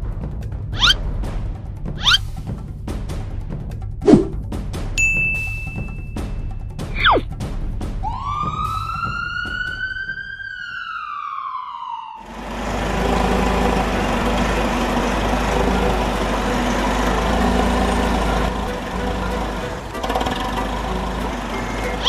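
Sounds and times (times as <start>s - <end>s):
police siren wail: 8.0s - 12.4s.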